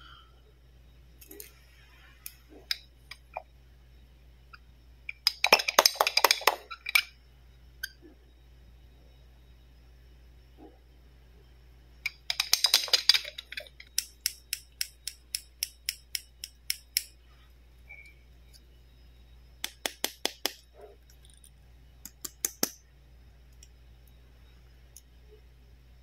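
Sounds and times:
plastic toy clicks: 5.1s - 7.1s, 12.1s - 17.1s.

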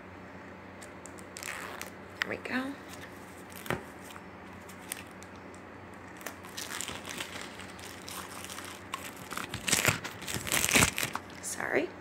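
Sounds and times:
plastic wrapping crinkling: 0.8s - 2.0s, 2.8s - 11.6s.

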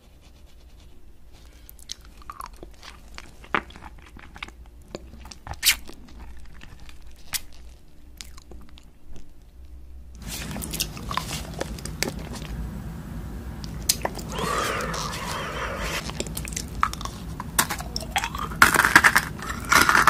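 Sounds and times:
candy crunching: 13.8s - 20.0s.

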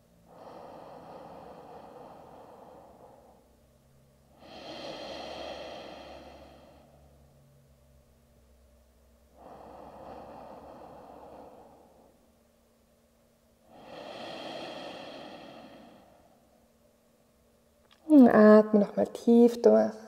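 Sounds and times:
woman breathing deeply: 0.0s - 7.4s, 9.3s - 12.7s, 13.6s - 16.8s.

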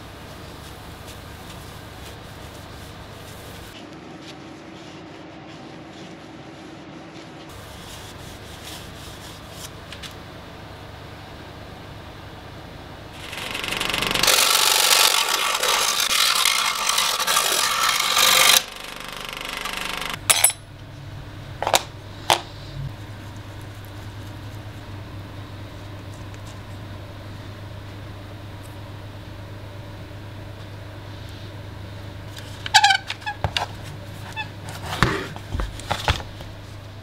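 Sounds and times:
faint steady hum: 0.0s - 37.0s
power saw cutting wood: 13.2s - 20.2s.

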